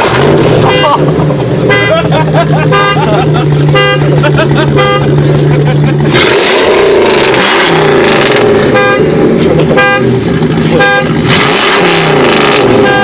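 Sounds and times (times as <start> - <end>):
truck engine revving: 0.0 - 13.0.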